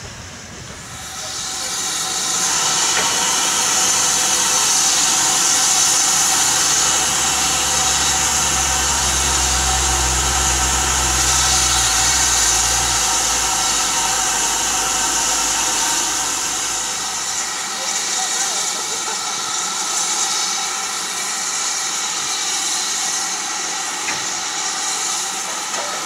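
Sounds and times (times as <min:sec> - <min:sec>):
low hum: 0:00.0 - 0:17.6
steam locomotive hissing: 0:00.0 - 0:26.0.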